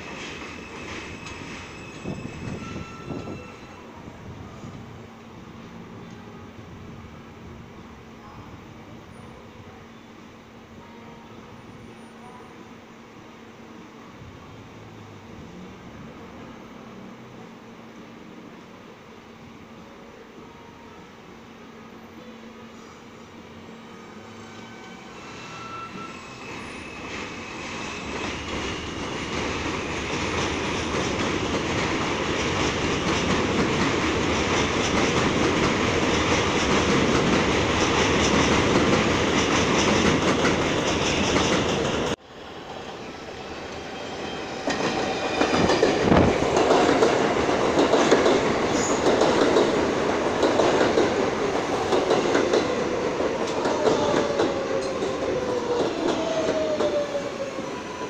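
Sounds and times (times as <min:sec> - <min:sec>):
wheels and brakes squealing: 0:00.2 - 0:03.9, 0:23.6 - 0:29.0, 0:48.7 - 0:49.1.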